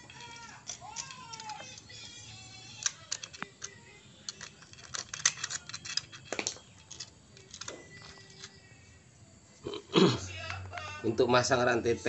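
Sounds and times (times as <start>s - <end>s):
metallic clicks and clinks: 0.0s - 8.7s.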